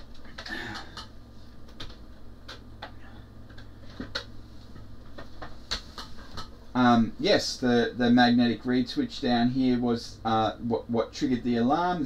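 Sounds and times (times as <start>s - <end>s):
steady low hum: 0.0s - 12.0s
plastic kit clicks and knocks: 1.7s - 4.3s.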